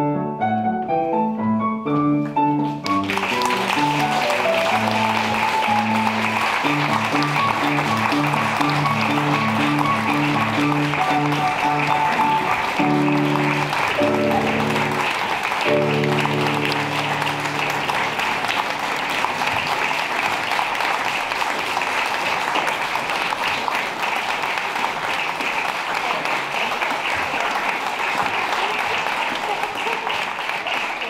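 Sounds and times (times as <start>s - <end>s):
held instrumental chords: 0.0s - 19.5s
audience applauding: 2.2s - 31.0s.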